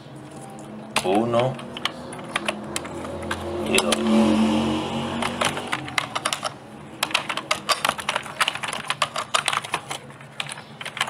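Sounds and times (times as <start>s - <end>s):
computer keyboard key clicks: 5.2s - 11.0s.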